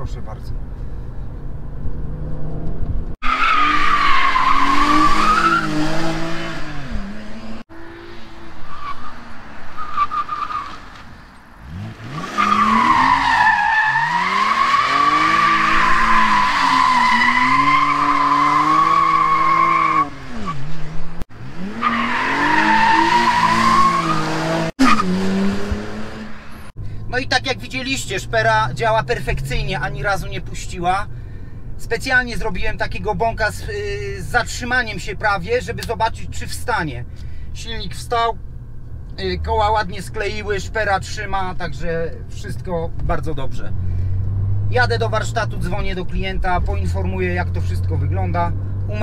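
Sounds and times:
car engine revving hard: 3.2s - 9.6s, 11.6s - 26.7s
tyres squealing: 12.2s - 20.6s.

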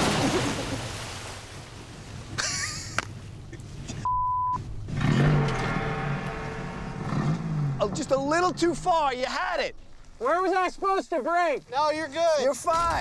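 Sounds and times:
truck splashing into water: 0.0s - 1.8s
censor bleep: 4.0s - 4.6s.

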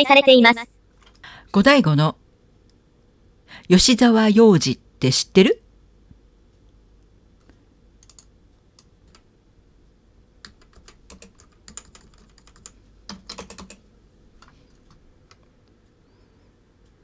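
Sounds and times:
keyboard typing: 8.0s - 9.3s, 10.4s - 13.8s.

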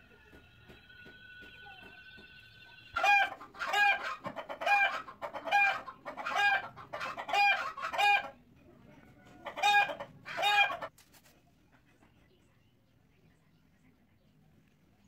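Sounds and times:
chicken clucking: 2.9s - 10.9s.

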